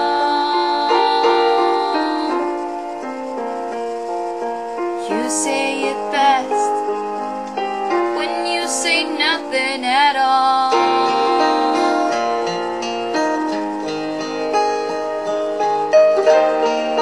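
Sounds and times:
piano backing track: 0:00.0 - 0:17.0
woman singing held notes: 0:05.0 - 0:06.8, 0:08.2 - 0:12.4.

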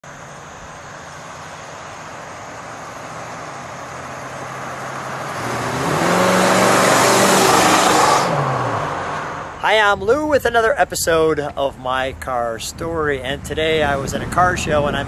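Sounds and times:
car engine accelerating: 0:00.2 - 0:09.9.

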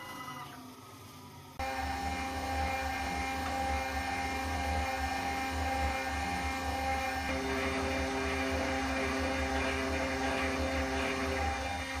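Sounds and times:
milling machine spindle humming: 0:00.0 - 0:12.0
drill cutting steel: 0:01.6 - 0:12.0.

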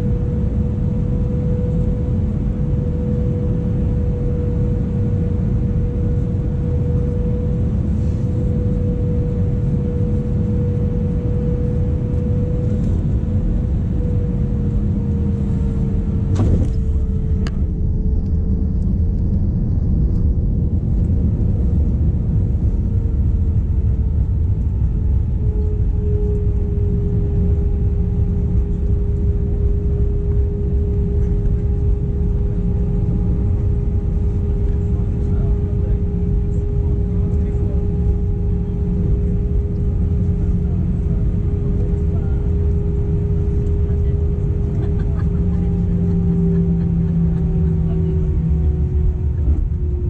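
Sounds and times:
jet engine and airflow rumble: 0:00.0 - 0:50.0
steady hum: 0:00.0 - 0:50.0.

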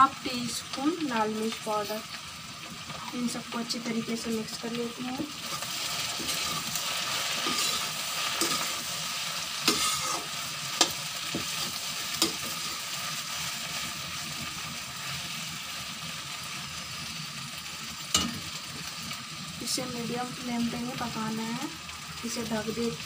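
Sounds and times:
okra sizzling in oil: 0:00.0 - 0:23.0
spatula stirring: 0:05.4 - 0:08.9, 0:09.5 - 0:12.7.

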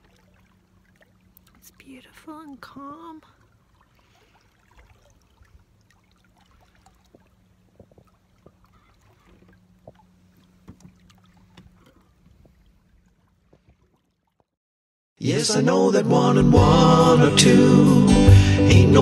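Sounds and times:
water tapping against hull: 0:03.4 - 0:14.5.

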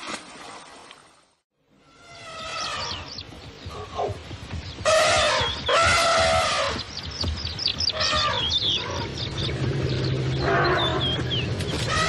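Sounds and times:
birds chirping: 0:01.9 - 0:12.0
elephant calls: 0:07.9 - 0:09.2.

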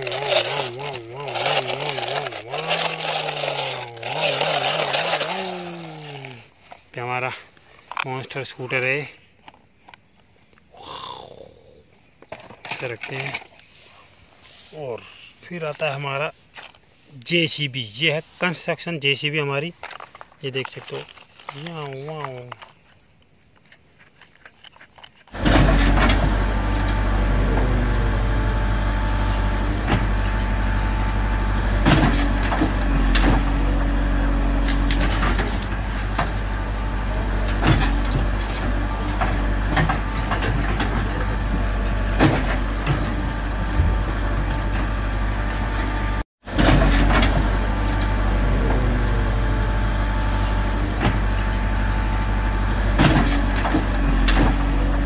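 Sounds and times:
diesel engine digging: 0:00.0 - 0:07.9, 0:25.2 - 0:55.0
clanks of digger bucket: 0:00.0 - 0:09.6, 0:12.2 - 0:13.6, 0:19.2 - 0:22.9, 0:24.2 - 0:55.0.

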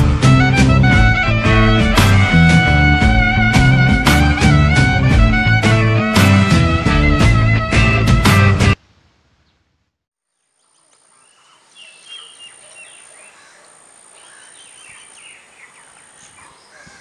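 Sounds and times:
birds chirping: 0:10.3 - 0:17.0.

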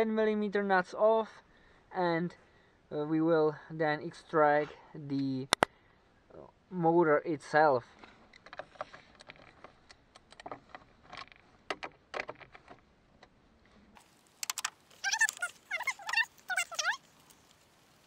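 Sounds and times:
high sliding chirps: 0:14.4 - 0:17.1.

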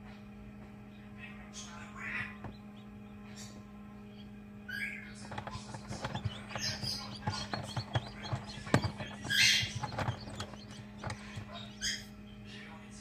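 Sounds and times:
incubator hum: 0:00.0 - 0:13.0
chick peeping: 0:00.9 - 0:12.5
small knocks and taps: 0:05.2 - 0:11.8.

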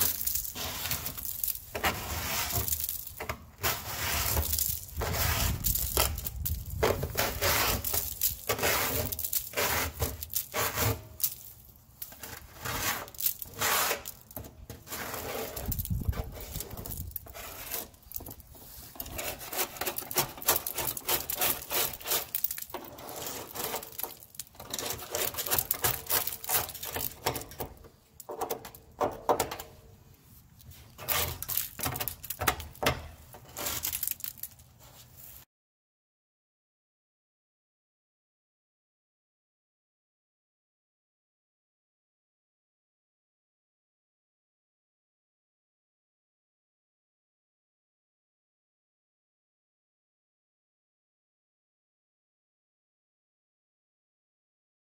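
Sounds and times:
scraper rasping against shells: 0:14.9 - 0:27.1.

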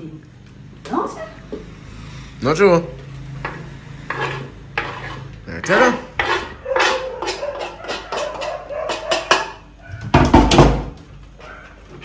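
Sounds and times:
carrot scraped off wooden board: 0:03.5 - 0:08.6.

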